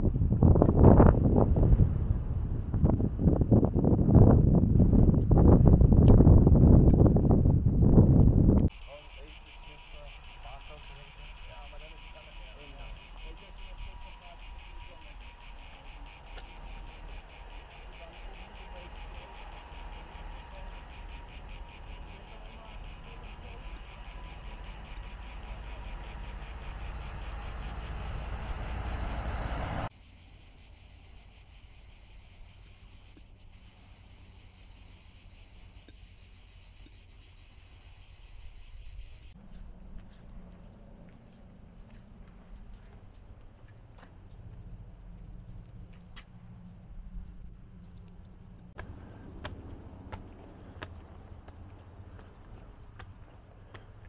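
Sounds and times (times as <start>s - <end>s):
low rumble: 0.0s - 8.7s
cicadas chirring: 0.0s - 54.0s.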